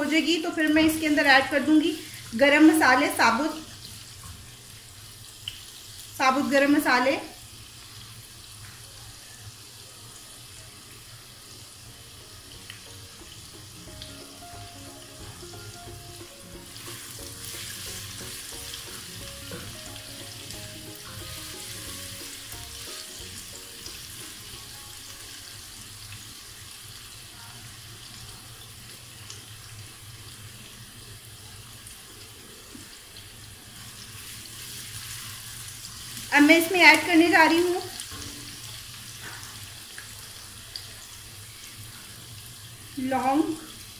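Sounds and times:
onions sizzling in hot oil: 0:00.0 - 0:43.9.

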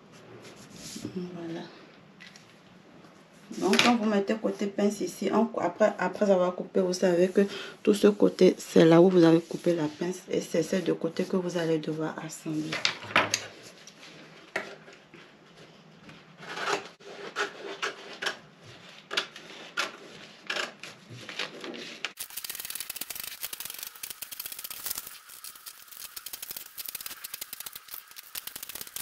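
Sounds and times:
paper rustling: 0:20.1 - 0:29.0
fast dense crackle: 0:22.2 - 0:29.0
scissors snipping paper: 0:22.2 - 0:29.0.

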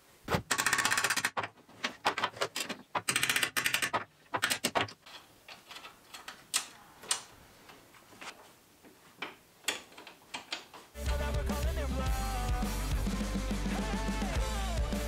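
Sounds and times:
rock music with drums: 0:11.0 - 0:15.0.

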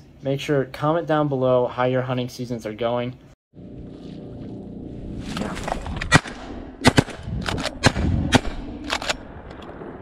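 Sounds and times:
shotgun blasts: 0:06.0 - 0:09.2.

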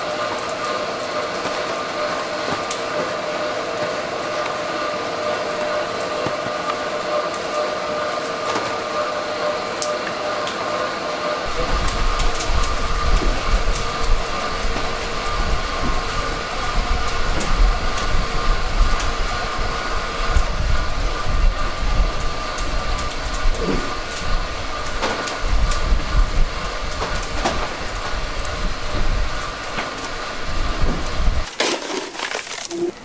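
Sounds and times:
machinery rumbling with hum: 0:11.2 - 0:33.0.

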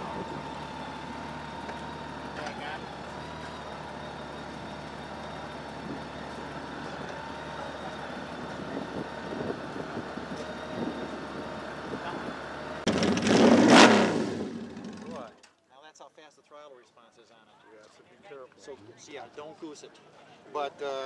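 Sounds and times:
vehicle engine idling: 0:00.0 - 0:15.4.

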